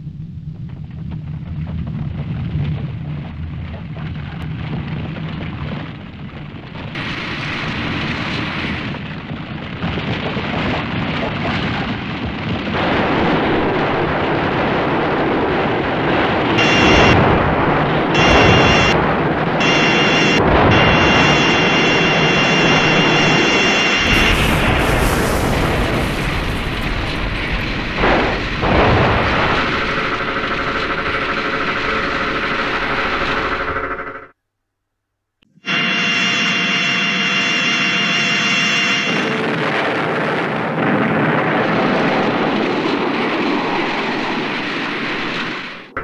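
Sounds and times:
low rumble: 0:00.0 - 0:34.3
high steady ray-beam tone: 0:35.5 - 0:39.3.

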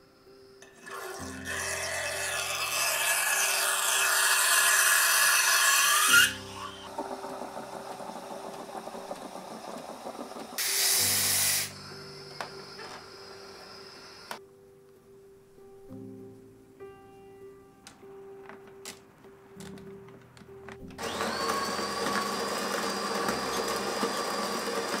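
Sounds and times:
espresso machine pump humming: 0:00.8 - 0:14.4, 0:21.0 - 0:25.0
steam wand hissing: 0:00.8 - 0:14.4.

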